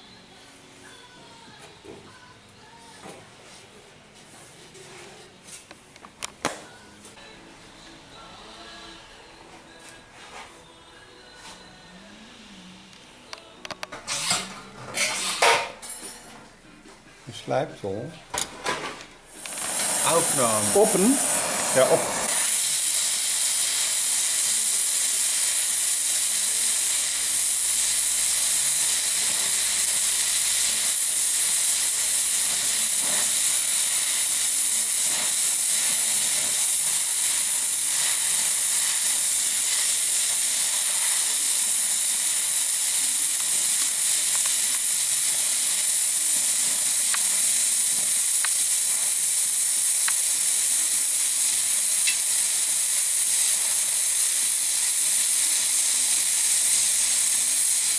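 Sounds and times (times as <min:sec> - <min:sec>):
welding torch flame hissing: 0:19.3 - 0:57.9.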